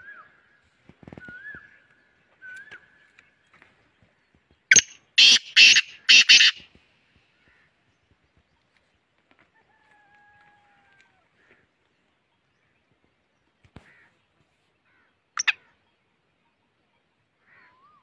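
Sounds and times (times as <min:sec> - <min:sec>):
francolin harsh grating call: 0:04.7 - 0:06.6.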